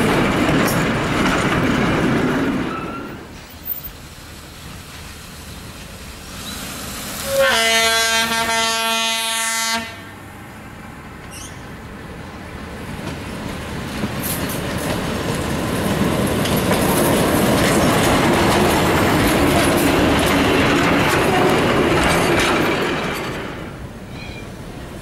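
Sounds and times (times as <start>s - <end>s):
wheels clicking on rails: 0.0s - 4.0s, 12.9s - 23.9s
railcar passing: 0.0s - 25.0s.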